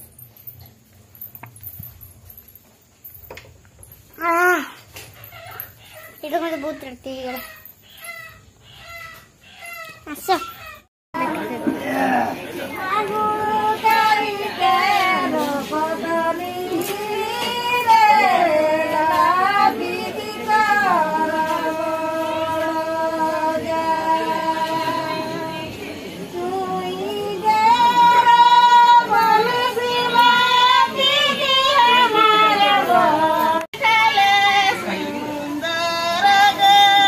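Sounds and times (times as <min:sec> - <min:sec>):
women singing slow song: 0:11.2 - 0:37.0.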